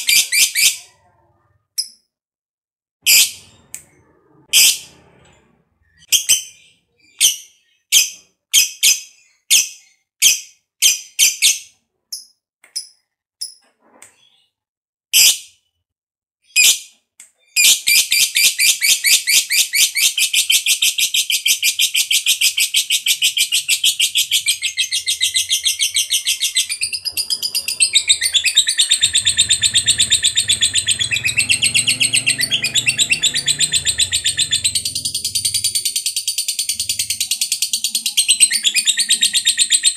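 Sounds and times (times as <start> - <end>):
lovebird chirping and trilling: 0.0 - 2.0, 5.9 - 13.6, 17.6 - 39.9.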